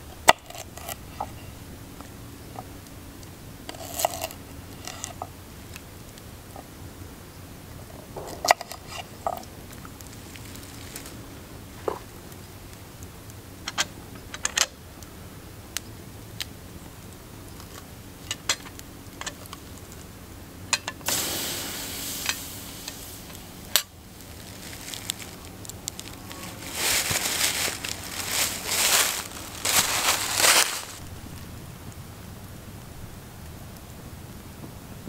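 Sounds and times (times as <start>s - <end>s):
campfire crackling and popping: 0.0s - 35.0s
pan scraping onto fire: 0.2s - 1.6s, 3.7s - 5.3s, 8.0s - 11.2s, 20.8s - 25.4s
footsteps crunching through dry leaves: 10.1s - 11.2s, 22.6s - 31.1s.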